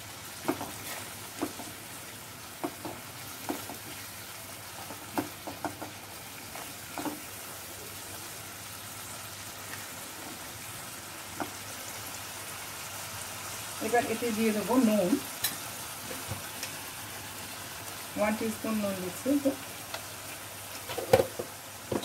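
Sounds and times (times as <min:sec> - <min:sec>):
paste sizzling in hot oil: 0:00.0 - 0:22.0
spatula tapping and scraping pan: 0:00.4 - 0:01.8, 0:02.6 - 0:04.0, 0:04.8 - 0:06.0, 0:06.6 - 0:07.3.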